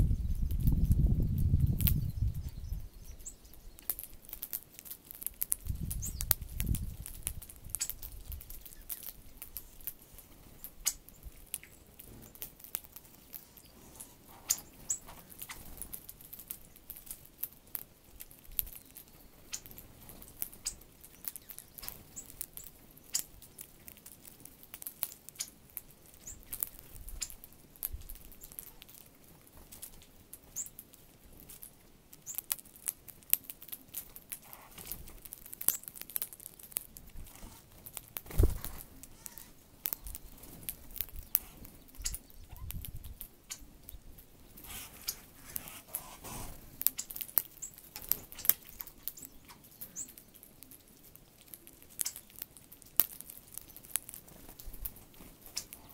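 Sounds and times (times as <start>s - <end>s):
high bird chirps: 0.0s - 3.9s, 13.4s - 15.7s, 41.1s - 42.8s
beaks tapping on seed: 0.2s - 55.9s.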